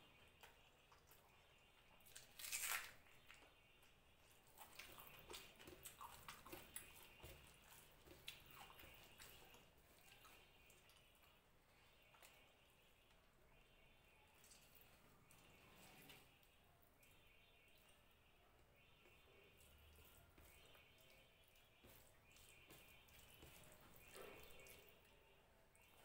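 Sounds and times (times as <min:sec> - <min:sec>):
chewing: 0:00.4 - 0:11.4
fingers mixing wet rice: 0:03.4 - 0:26.0.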